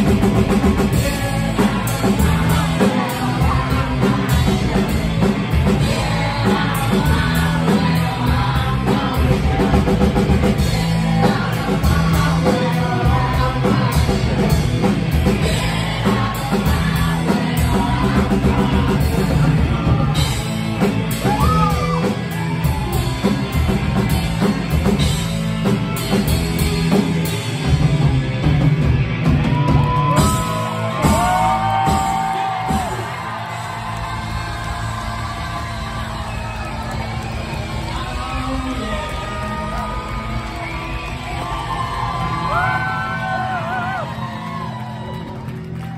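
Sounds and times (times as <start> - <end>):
bass guitar: 0.0 - 45.9
distorted electric guitars: 0.0 - 45.9
pounding drum kit: 0.0 - 45.9.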